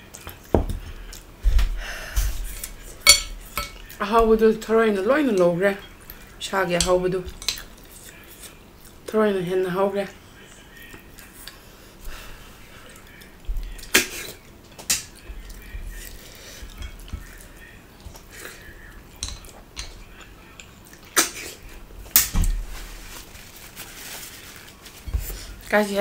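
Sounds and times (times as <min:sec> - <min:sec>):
chewing and mouth noises: 0:10.8 - 0:11.7, 0:12.7 - 0:21.8.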